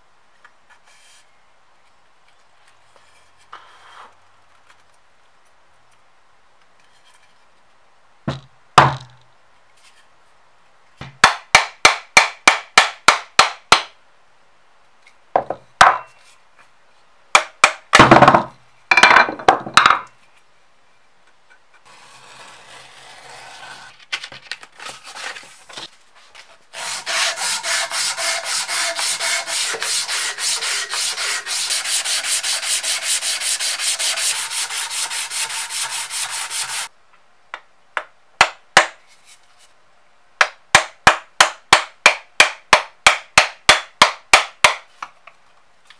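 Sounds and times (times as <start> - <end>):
sandpaper rubbing wood: 26.7 - 36.9.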